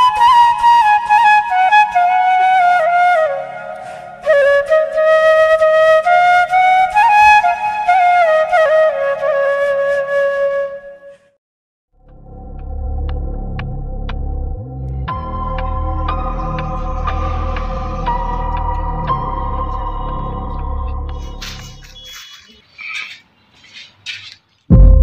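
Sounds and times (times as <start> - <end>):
flute melody: 0.0 - 11.4, 15.2 - 22.4.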